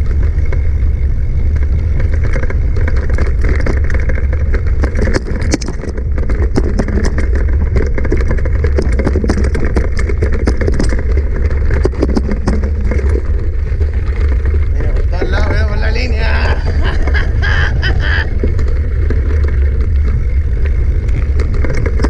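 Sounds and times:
bike clicks and rattles: 0.0 - 22.0
mountain bike rumble on rocks: 0.0 - 22.0.

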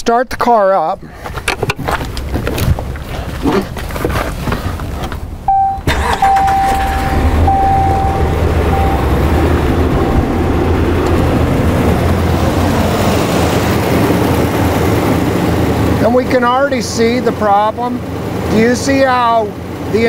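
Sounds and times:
engine cranking and starting: 4.8 - 11.6
high whine: 5.5 - 16.1.

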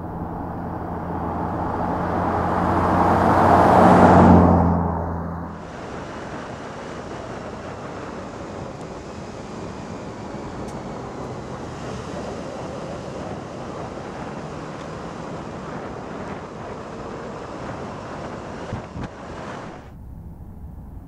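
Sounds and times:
tyre and road noise: 0.0 - 6.4
wind rush over microphone: 0.0 - 21.0.

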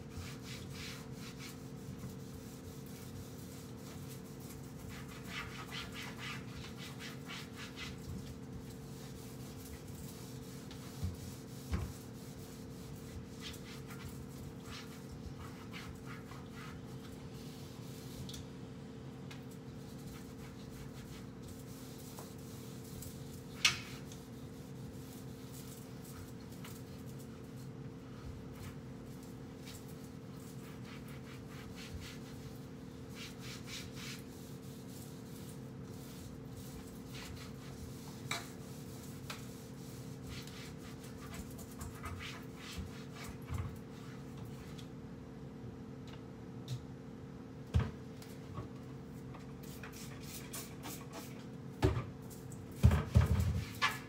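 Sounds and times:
cloth wiping wooden cabinets: 0.0 - 18.3, 19.8 - 44.8.

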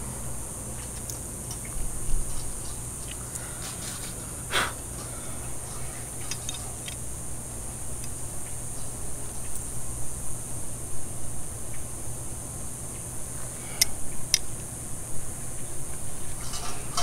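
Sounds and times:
metal scrape: 16.3 - 17.0.

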